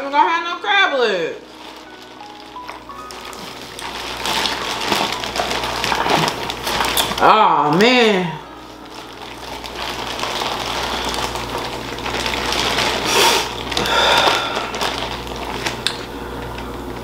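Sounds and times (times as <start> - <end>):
plastic bags crinkling: 0.0 - 17.0
crab shells snapping: 13.0 - 16.1.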